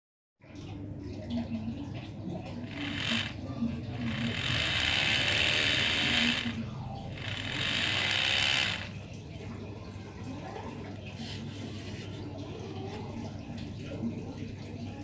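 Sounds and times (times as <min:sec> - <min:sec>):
toy scooter whirring: 0:02.5 - 0:09.2.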